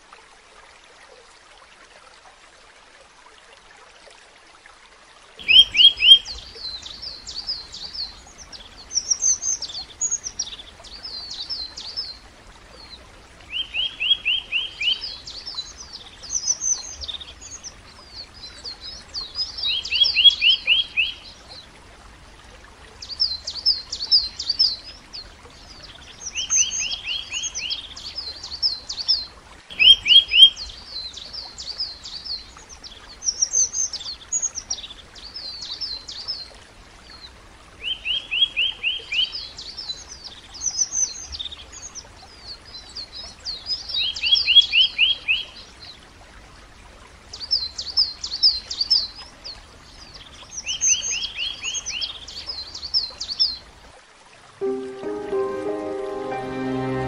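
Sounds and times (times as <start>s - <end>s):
songbird singing: 5.4s - 12.2s, 12.8s - 21.4s, 23.0s - 36.4s.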